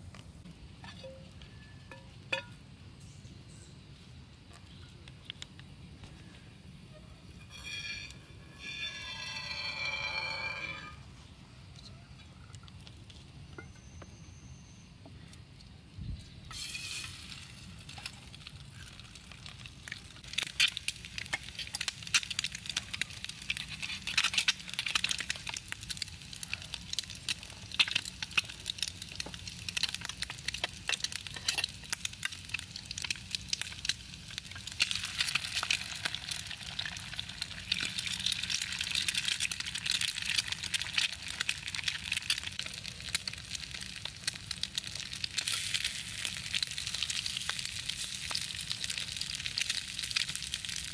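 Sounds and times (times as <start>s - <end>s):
egg sizzling and popping in oil: 0.1s - 2.6s, 7.4s - 11.0s, 16.5s - 50.9s.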